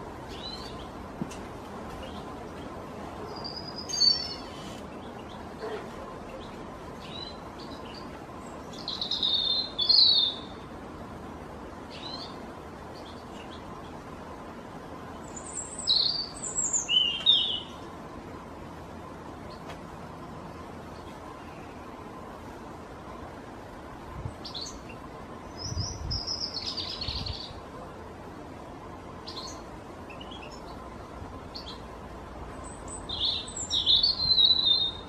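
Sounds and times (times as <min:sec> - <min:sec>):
robin singing: 0:00.0 - 0:01.2, 0:01.8 - 0:10.8, 0:11.7 - 0:18.0, 0:24.2 - 0:27.7, 0:29.1 - 0:35.0
background hiss: 0:00.0 - 0:35.0.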